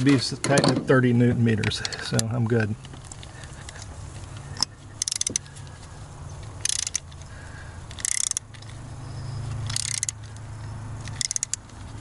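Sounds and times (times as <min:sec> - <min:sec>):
ratchet wrench clicking: 0:04.6 - 0:05.5, 0:06.6 - 0:07.3, 0:07.9 - 0:08.8, 0:09.6 - 0:11.9.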